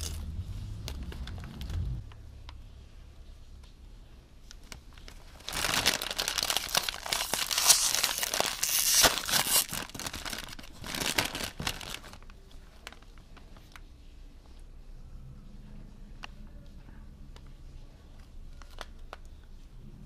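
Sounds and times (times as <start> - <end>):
chip bag crinkling: 4.6 - 13.7.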